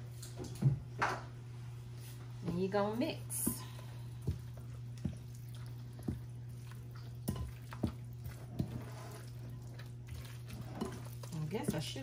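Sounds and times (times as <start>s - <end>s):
spatula stirring wet food in bowl: 2.4s - 12.0s.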